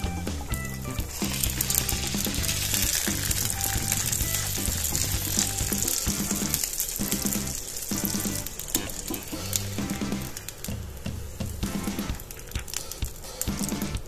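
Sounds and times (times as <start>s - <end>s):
background music: 0.0s - 14.0s
butter sizzling in a frying pan: 0.7s - 10.5s.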